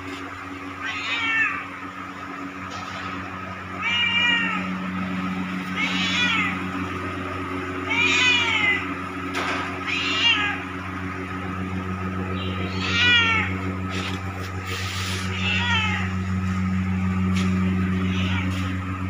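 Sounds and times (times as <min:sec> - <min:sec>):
cat meowing: 0:00.8 - 0:01.7, 0:03.8 - 0:04.7, 0:05.7 - 0:06.8, 0:07.8 - 0:09.0, 0:09.8 - 0:10.7, 0:12.3 - 0:13.8, 0:15.1 - 0:16.2, 0:17.8 - 0:18.8.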